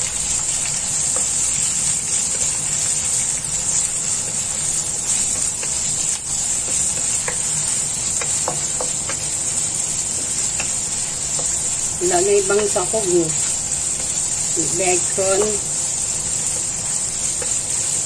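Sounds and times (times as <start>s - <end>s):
bacon and onion sizzling in oil: 0.0s - 18.0s
wooden spatula knocking on pan: 6.6s - 7.5s, 8.1s - 9.3s, 10.1s - 11.6s.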